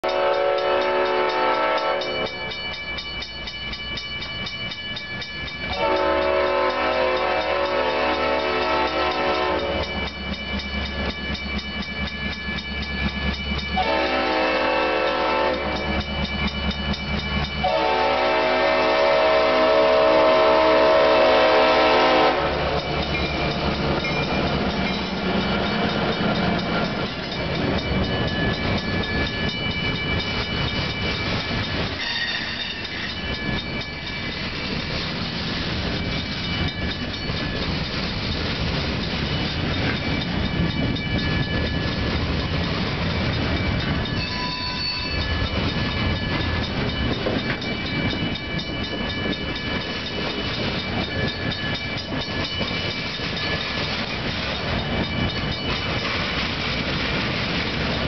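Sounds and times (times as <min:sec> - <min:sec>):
train horn blasts: 0:00.0 - 0:02.2, 0:05.7 - 0:10.0, 0:13.8 - 0:15.8, 0:17.6 - 0:22.9
crossing bell ringing: 0:00.0 - 0:58.0
locomotive rumbling past: 0:00.0 - 0:58.0
freight cars clickety-clack: 0:21.2 - 0:58.0.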